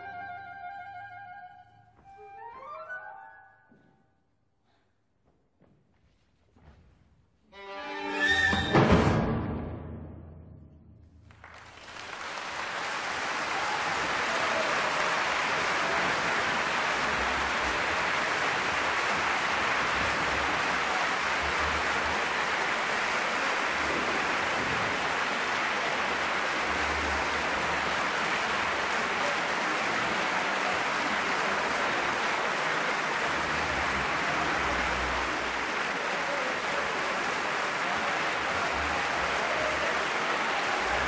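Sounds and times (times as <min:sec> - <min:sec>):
audience applause: 0:11.2 - 0:41.0.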